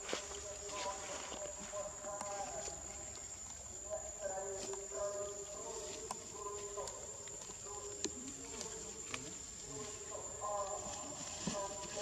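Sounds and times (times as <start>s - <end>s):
insects droning: 0.0s - 12.0s
monkey rustling through leaves: 8.5s - 12.0s.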